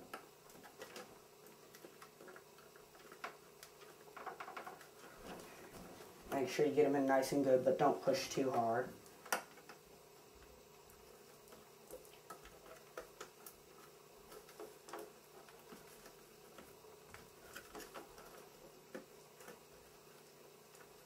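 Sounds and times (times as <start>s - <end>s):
low steady hum: 0.0s - 21.0s.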